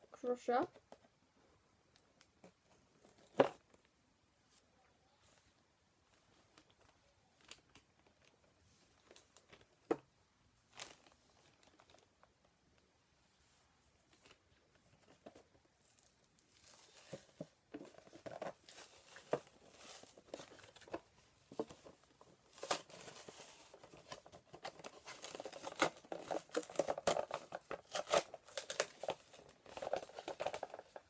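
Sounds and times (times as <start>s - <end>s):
plastic packaging crinkling and tearing: 6.6s - 8.4s, 10.7s - 12.1s, 15.8s - 31.0s.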